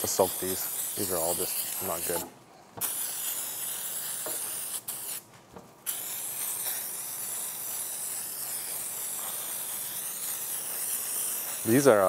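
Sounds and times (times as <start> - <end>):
aerosol can spraying: 0.0 - 5.2, 5.8 - 12.0.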